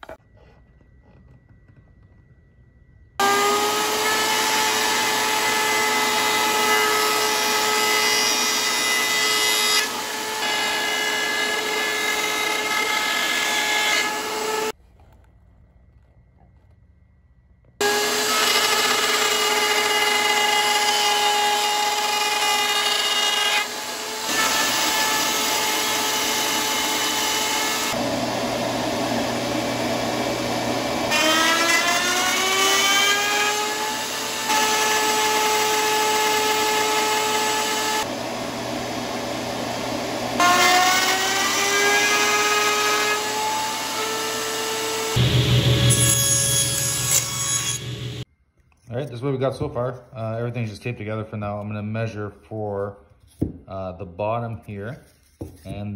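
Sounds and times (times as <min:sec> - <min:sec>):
router whining as it cuts wood: 0:03.2 - 0:14.8, 0:17.8 - 0:48.2.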